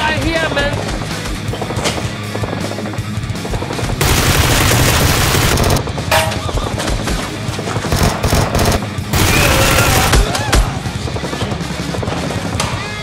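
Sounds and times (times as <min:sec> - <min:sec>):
background music: 0:00.0 - 0:13.0
rapid automatic gunfire: 0:04.0 - 0:05.8, 0:07.8 - 0:10.3.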